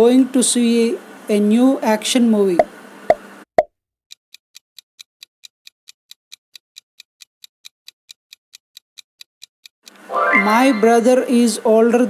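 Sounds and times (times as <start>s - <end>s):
countdown timer ticking: 10.1s - 11.3s.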